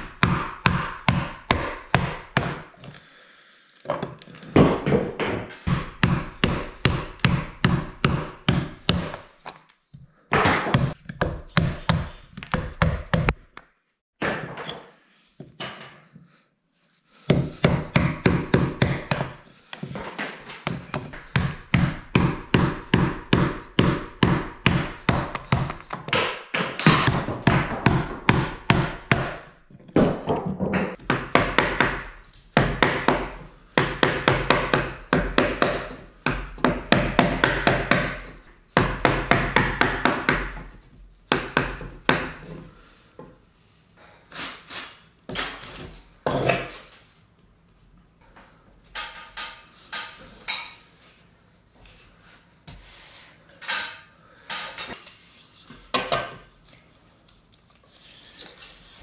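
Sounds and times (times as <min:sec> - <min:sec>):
mallet striking chisel into wood: 0:00.0 - 0:02.7, 0:04.6 - 0:09.2, 0:20.6 - 0:40.7.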